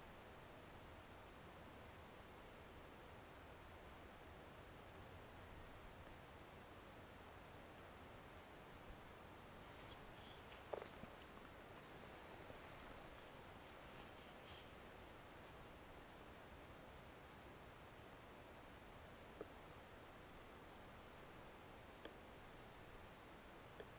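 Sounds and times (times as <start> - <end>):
crickets chirring: 0.1 - 23.9.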